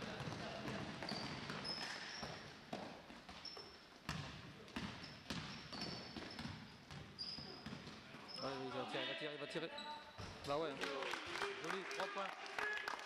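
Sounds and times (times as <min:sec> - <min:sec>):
basketball bouncing on gym floor: 0:00.0 - 0:08.3
sneaker squeaks on court: 0:00.2 - 0:08.7, 0:09.7 - 0:10.4.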